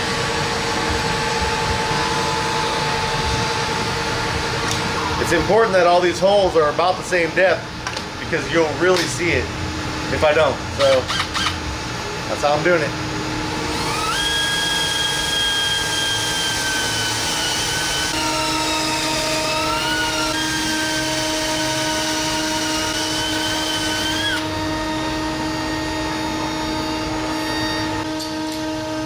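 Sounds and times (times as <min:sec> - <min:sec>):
steady background hum: 0:00.0 - 0:29.0
cordless drill boring into acrylic: 0:10.8 - 0:11.6, 0:13.7 - 0:24.5.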